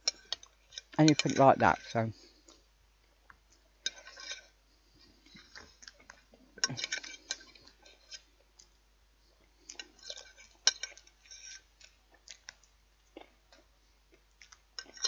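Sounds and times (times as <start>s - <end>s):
knife and fork scraping plate: 0.1s - 1.9s, 3.8s - 4.6s, 6.6s - 8.3s, 9.9s - 11.7s.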